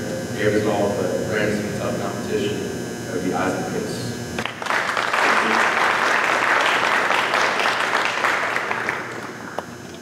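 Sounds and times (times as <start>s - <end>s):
small audience applauding: 4.4s - 9.6s.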